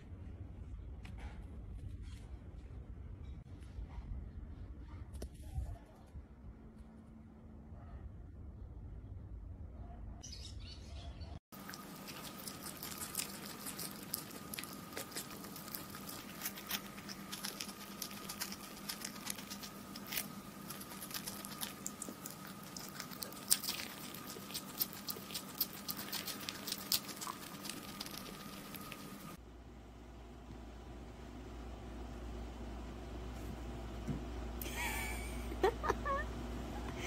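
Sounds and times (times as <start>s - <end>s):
faint steady hum: 11.1s - 37.0s
hamster gnawing corn: 11.5s - 29.4s.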